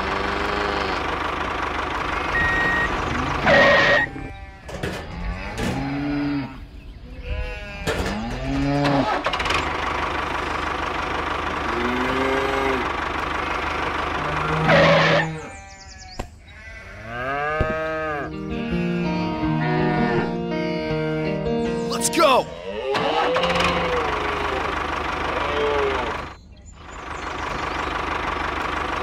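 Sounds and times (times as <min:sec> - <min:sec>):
bleating animal calls: 0:00.0 - 0:01.3, 0:02.2 - 0:09.4, 0:11.5 - 0:26.3
background music: 0:18.1 - 0:22.6.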